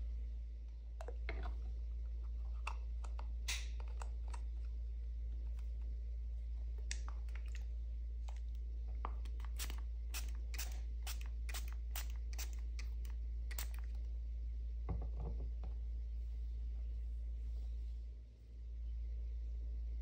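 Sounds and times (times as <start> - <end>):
steady low hum: 0.0 - 20.0
pump spray bottle hissing: 9.4 - 13.9.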